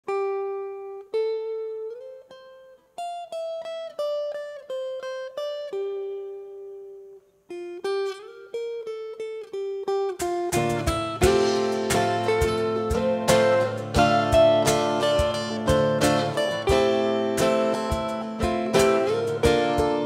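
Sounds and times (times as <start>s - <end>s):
plucked acoustic guitar melody: 0.1s - 20.0s
strummed guitar: 0.1s - 20.0s
percussion: 10.2s - 20.0s.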